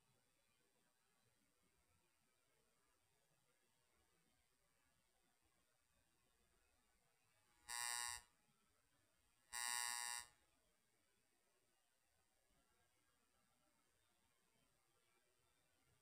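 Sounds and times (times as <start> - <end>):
short electronic buzzes: 7.7 - 8.3, 9.6 - 10.3.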